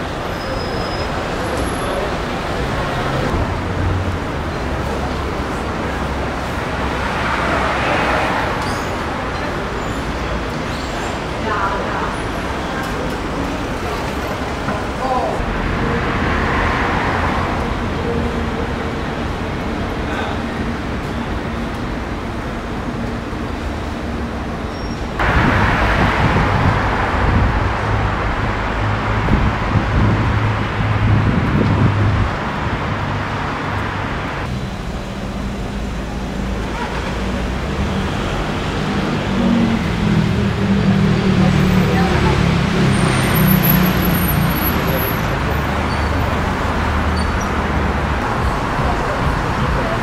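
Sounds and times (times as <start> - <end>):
rumble of passing cars: 0.0 - 50.0
traffic hum: 0.0 - 50.0.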